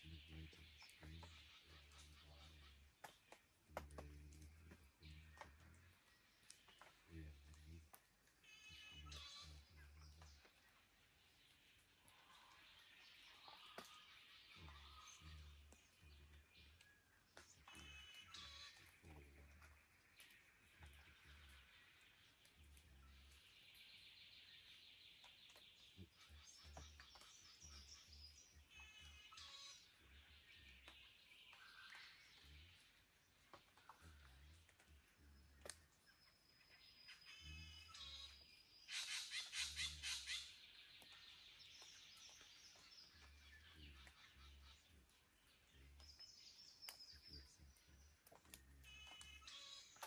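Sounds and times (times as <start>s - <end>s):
bird calls: 0.0s - 50.0s
bird trill: 8.4s - 10.7s, 12.0s - 33.0s, 33.6s - 50.0s
soft ticks: 46.8s - 47.1s.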